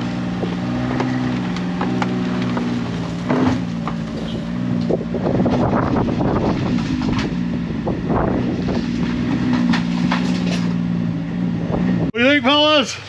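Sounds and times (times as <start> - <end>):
snowmobile engine running: 0.0 - 10.9
knocks and clatters on trailer floor: 0.4 - 4.3.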